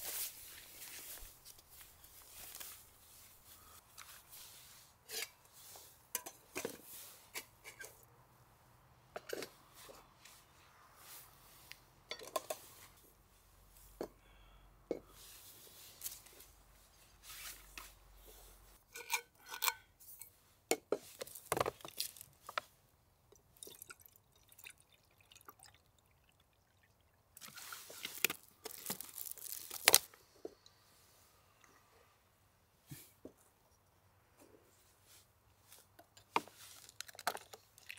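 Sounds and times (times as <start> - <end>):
cookware clinks and taps: 12.1 - 12.6.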